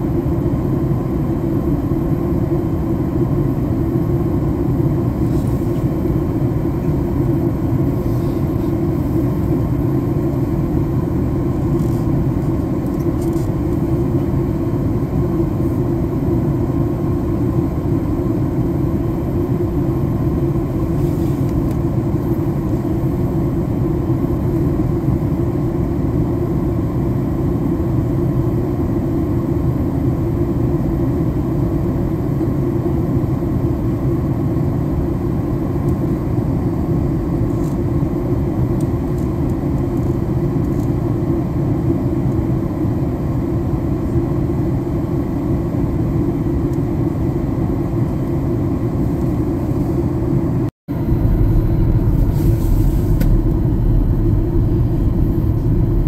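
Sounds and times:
jet engine rumble in cabin: 0.0 - 56.0
rushing air: 50.9 - 56.0.

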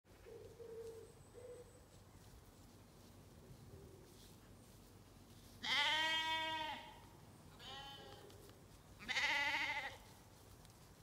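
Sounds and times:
sheep bleating: 5.6 - 7.0, 7.6 - 8.2, 9.0 - 10.1.

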